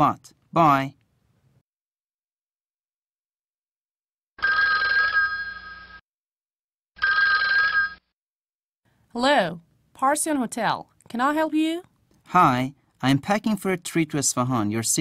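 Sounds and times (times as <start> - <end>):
two-tone telephone ringing: 4.4 - 6.0, 7.0 - 8.1.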